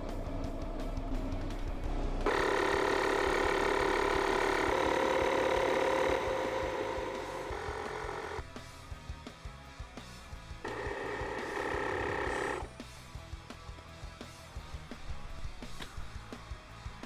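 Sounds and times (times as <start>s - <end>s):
air compressor whining: 0.0s - 8.4s, 10.6s - 12.8s.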